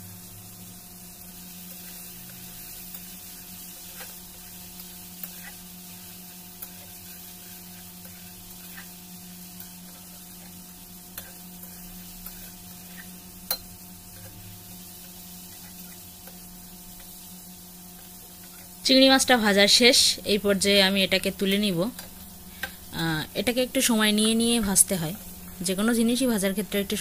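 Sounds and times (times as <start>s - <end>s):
prawns sizzling in hot oil: 0.0s - 27.0s.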